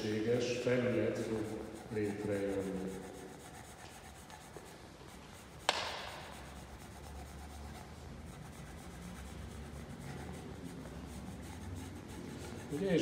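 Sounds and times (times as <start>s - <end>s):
pencil scratching on paper: 0.0s - 13.0s
sharp click: 5.7s - 6.2s.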